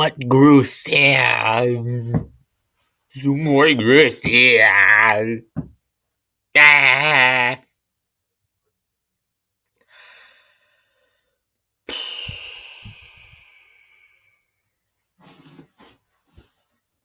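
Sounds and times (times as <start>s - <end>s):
person sighing: 11.9s - 14.4s.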